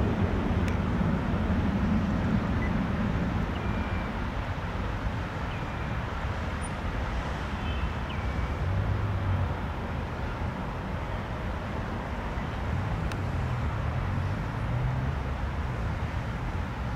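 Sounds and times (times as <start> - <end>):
jet engines rumbling: 0.0 - 5.2.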